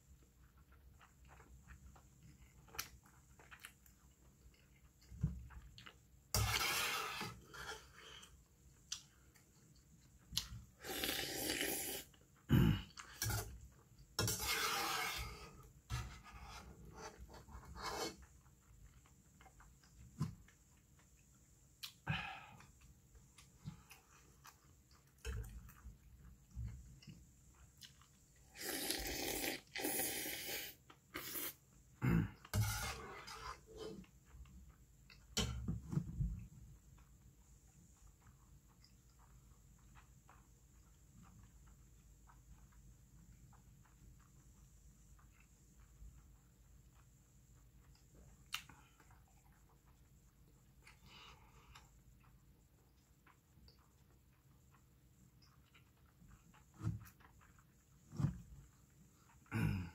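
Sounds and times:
chewing: 0.0 - 6.3, 7.4 - 14.2, 15.5 - 32.5, 33.3 - 59.9
metal spoon scraping metal pot: 6.4 - 7.9, 13.2 - 13.6, 14.2 - 16.7, 32.5 - 34.0
noisy slurps: 10.4 - 20.0, 27.6 - 34.2.

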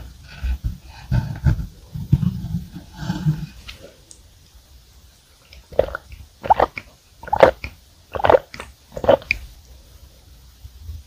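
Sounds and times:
milk being gulped: 5.6 - 9.4.

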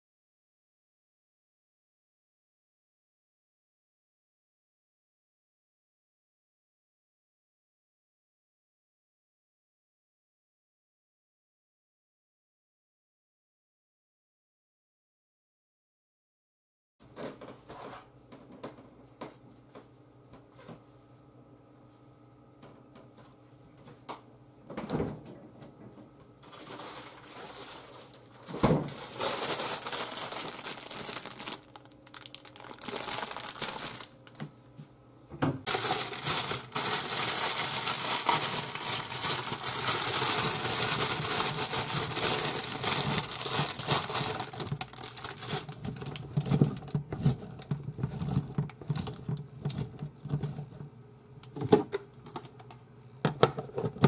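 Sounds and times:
bean sprouts rustling in plastic basket: 26.4 - 34.1, 35.7 - 49.8
plastic packaging crinkling: 26.4 - 34.4, 35.7 - 50.8.

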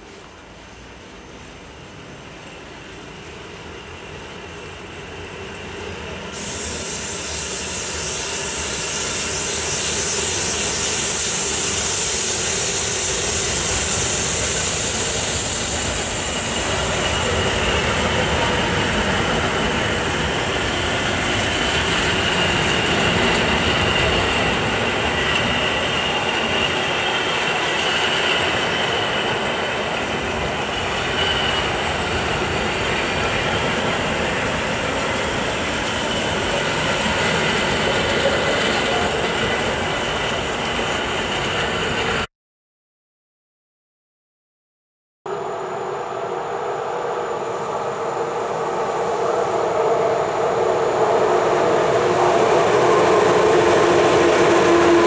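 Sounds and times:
train wheels rolling on rails: 0.0 - 42.3, 46.7 - 55.0
thin high squeal: 6.4 - 18.1.

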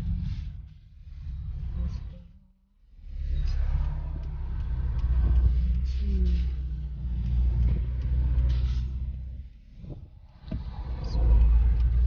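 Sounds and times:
car engine and road rumble: 2.8 - 12.0.

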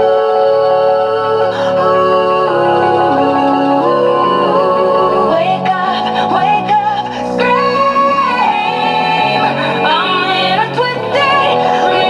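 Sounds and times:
music with long held notes: 0.0 - 12.0.

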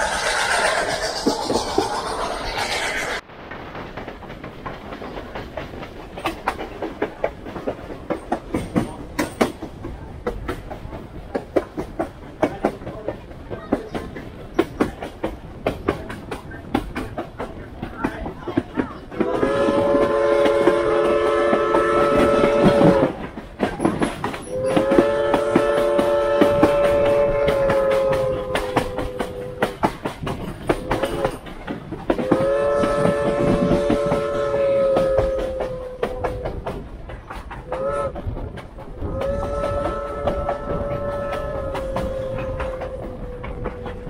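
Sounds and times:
train wheels clickety-clack: 0.0 - 44.0
steam locomotive chime whistle: 19.2 - 23.1, 24.4 - 29.8, 32.2 - 36.2, 39.1 - 43.1.

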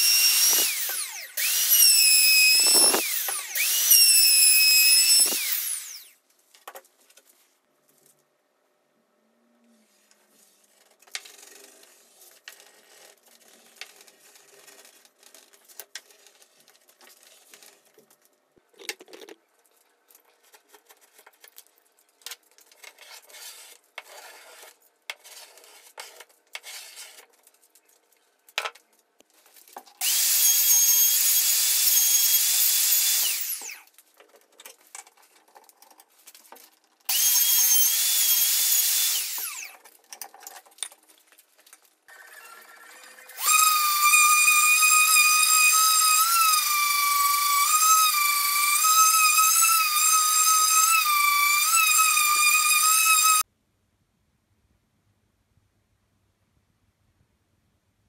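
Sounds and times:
power tool whining: 0.0 - 6.2, 30.0 - 33.9, 37.1 - 39.8, 42.1 - 53.4.

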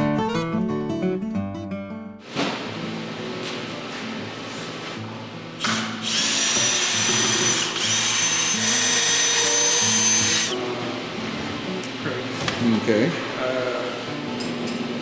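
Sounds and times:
cordless drill whine: 6.0 - 10.6.

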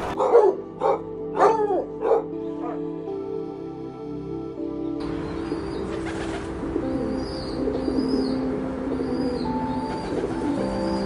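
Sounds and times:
small birds chirping: 4.8 - 11.0
dove cooing: 5.1 - 11.0.

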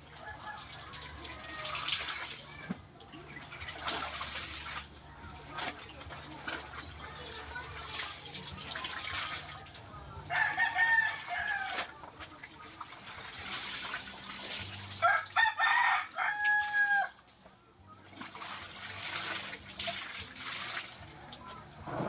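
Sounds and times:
water splashing and pouring: 0.0 - 10.1, 10.7 - 16.1, 18.0 - 22.0
rooster crowing: 10.3 - 11.9, 15.0 - 17.2.

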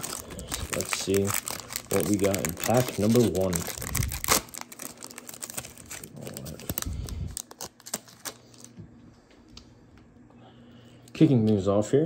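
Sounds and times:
foil wrapper crinkling and tearing: 0.0 - 8.7.

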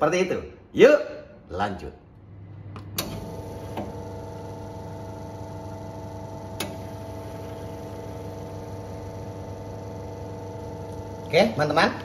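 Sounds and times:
espresso machine pump humming: 2.8 - 12.0.

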